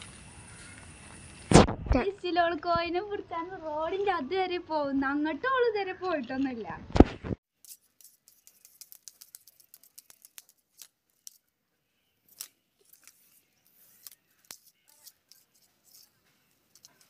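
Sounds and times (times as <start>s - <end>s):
twig clicking on a step: 7.0s - 11.5s, 12.3s - 17.0s.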